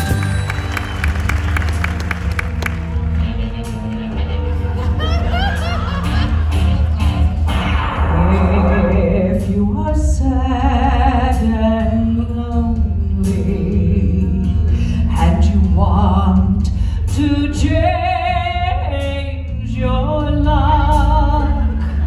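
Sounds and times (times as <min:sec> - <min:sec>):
instrumental accompaniment with bass: 0:00.0 - 0:22.0.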